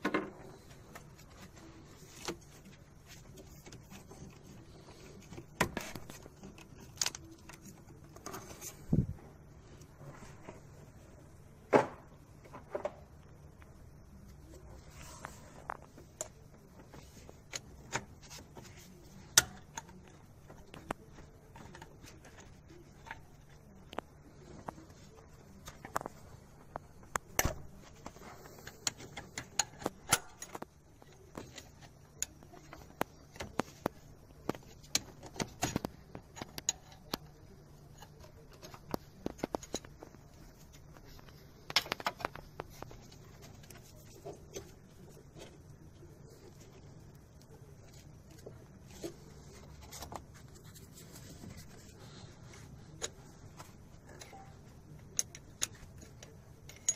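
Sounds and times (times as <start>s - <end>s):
faint low hum: 0.0s - 56.9s.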